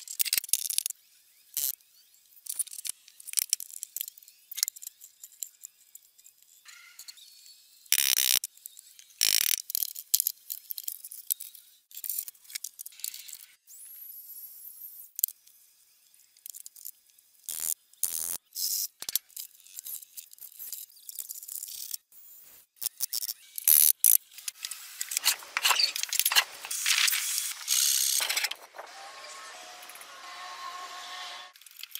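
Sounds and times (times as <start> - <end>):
hand tools clicking and knocking: 25.1 - 28.7.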